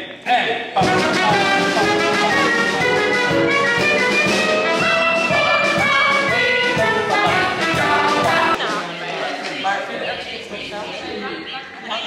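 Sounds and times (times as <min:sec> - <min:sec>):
upbeat music with brass: 0:00.8 - 0:09.3.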